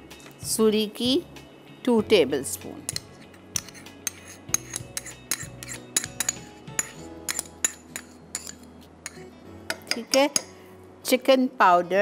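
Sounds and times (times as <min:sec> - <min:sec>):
faint background music: 0:00.0 - 0:12.0
metal spoon clinking on ceramic bowl: 0:02.9 - 0:10.6.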